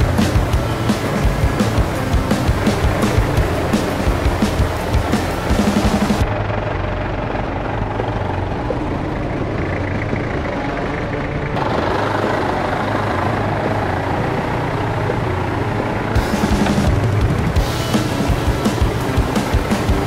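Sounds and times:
engine running steadily: 0:00.0 - 0:20.0.

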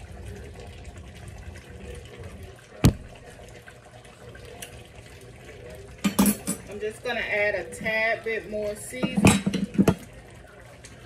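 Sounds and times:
pot simmering with low bubbling: 0:00.0 - 0:11.0
sharp knock: 0:02.8 - 0:03.1.

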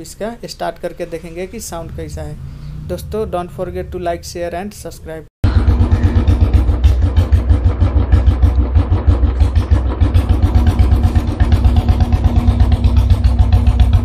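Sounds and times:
motorcycle engine idling: 0:05.4 - 0:14.0.

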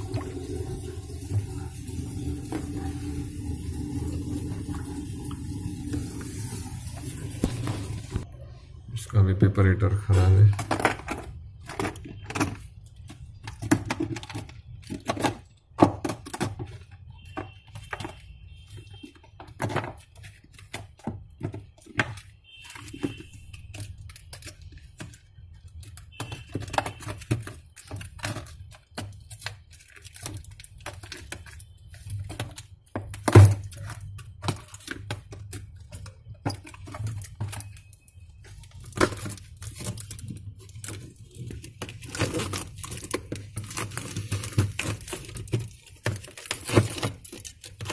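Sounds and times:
plastic and metal parts clicking: 0:10.1 - 0:47.9.

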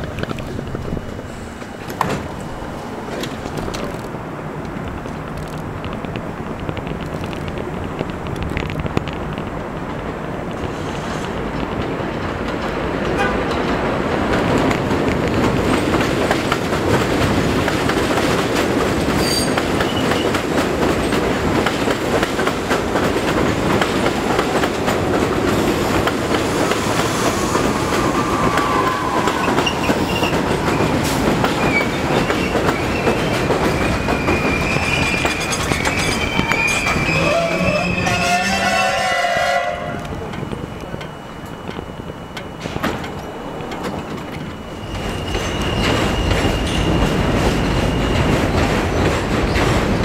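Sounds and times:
subway train rumble and wheel clatter: 0:00.0 - 0:50.0
train wheels squealing: 0:19.1 - 0:20.4, 0:26.4 - 0:39.0, 0:40.2 - 0:50.0.

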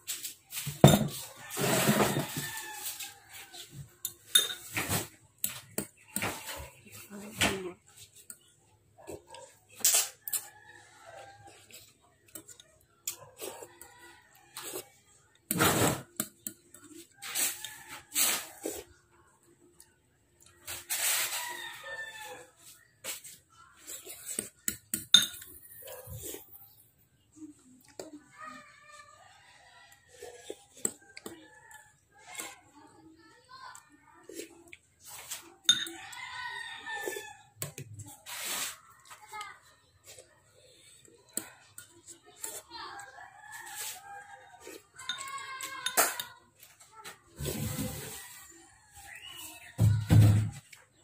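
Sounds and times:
rooster crowing: 0:01.5 - 0:03.4
spoon clinking against bowl: 0:04.1 - 0:04.8, 0:24.7 - 0:25.8, 0:35.7 - 0:36.0, 0:45.0 - 0:46.3.

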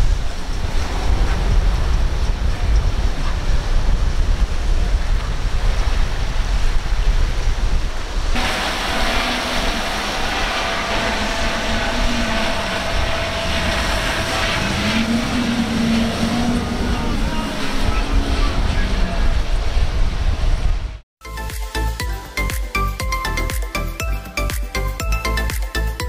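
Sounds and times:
wind buffeting microphone: 0:00.0 - 0:21.0
rushing water: 0:04.0 - 0:18.8
outboard motor whine: 0:04.5 - 0:20.7
spray hiss: 0:08.3 - 0:14.8.

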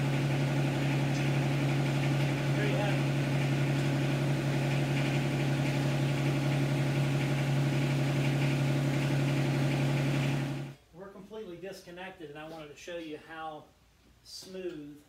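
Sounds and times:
diesel tractor engine idling: 0:00.0 - 0:10.8.

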